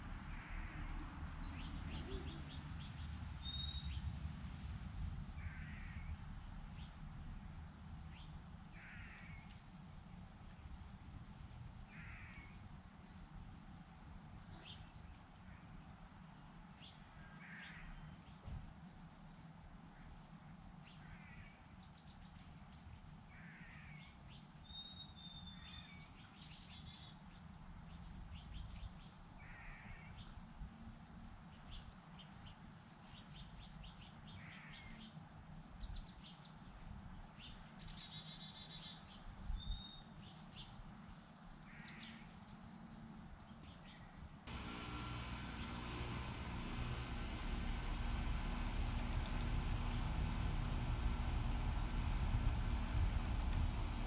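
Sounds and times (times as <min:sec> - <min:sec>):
low background rumble: 0:44.5 - 0:54.0.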